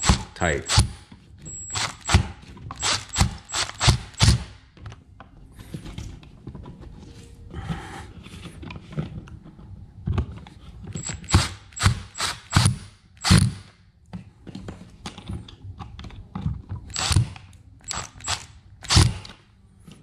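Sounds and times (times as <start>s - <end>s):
power screwdriver clicking: 2.8s - 4.4s, 11.0s - 13.5s, 16.9s - 19.3s.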